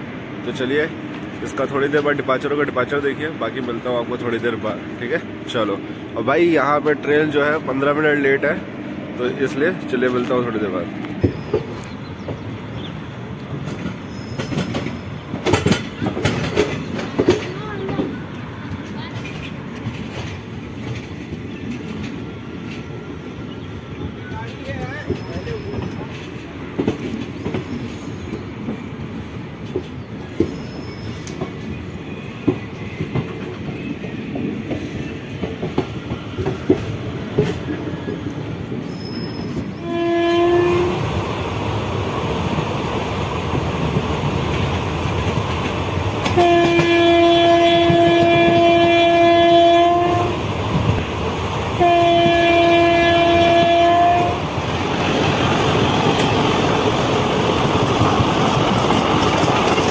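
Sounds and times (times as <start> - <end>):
train rumble inside coach: 0.0 - 59.9
wheels clicking over rail joints: 13.4 - 23.0, 42.4 - 59.9
locomotive horn blasts: 39.8 - 41.0, 46.4 - 50.4, 51.8 - 54.4.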